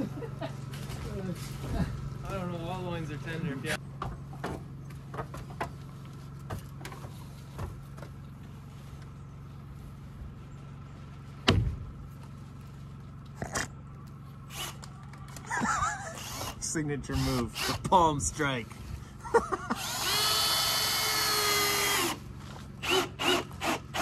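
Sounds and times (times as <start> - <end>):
heavy thump: 11.4 - 11.8.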